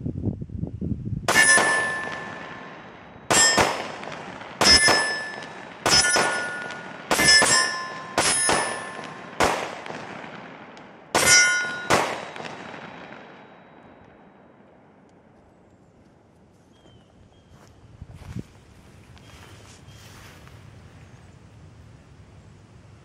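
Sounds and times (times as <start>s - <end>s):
steel plate target clanging: 1.3s - 9.8s, 11.2s - 14.0s
pistol shots: 1.3s - 14.2s.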